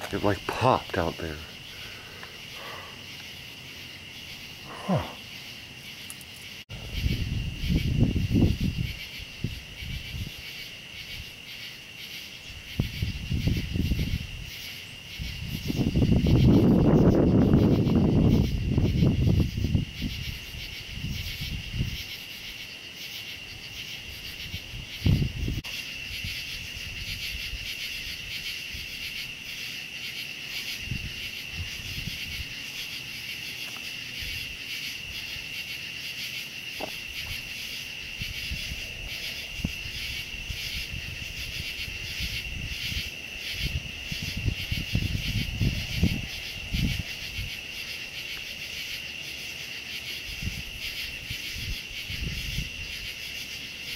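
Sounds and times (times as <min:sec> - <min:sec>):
night insects trilling: 0:00.0 - 0:53.9
low microphone rumbles: 0:06.7 - 0:10.3.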